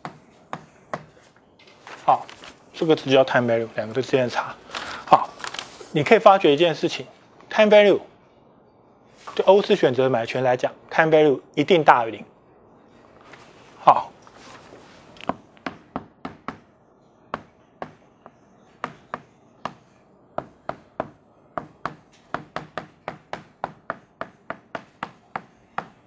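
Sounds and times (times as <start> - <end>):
chalk tapping and scraping on blackboard: 0.0 - 1.4, 17.4 - 26.0.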